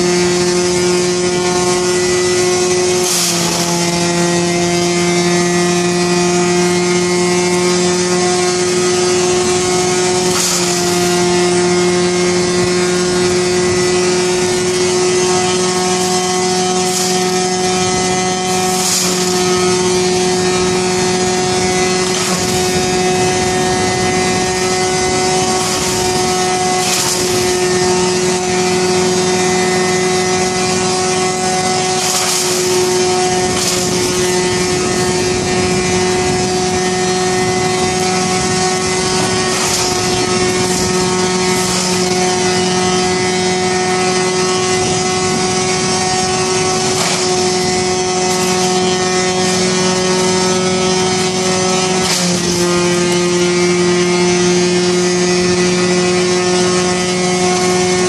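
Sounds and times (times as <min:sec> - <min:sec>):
wood chipper running: 0:00.0 - 0:58.0
branches cracking in chipper: 0:01.2 - 0:56.3.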